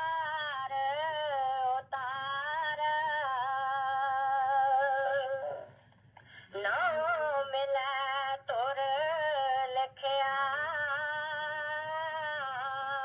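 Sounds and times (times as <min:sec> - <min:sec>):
person singing unaccompanied: 0:00.0 - 0:05.8, 0:06.4 - 0:13.0.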